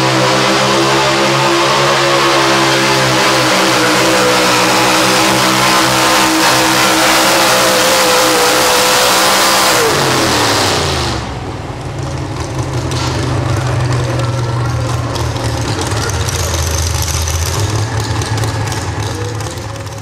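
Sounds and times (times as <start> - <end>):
truck engine at high revs: 0.0 - 20.0.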